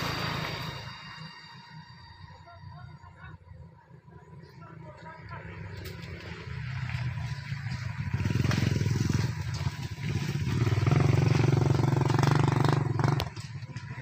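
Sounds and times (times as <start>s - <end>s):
small engine running: 4.2s - 14.0s.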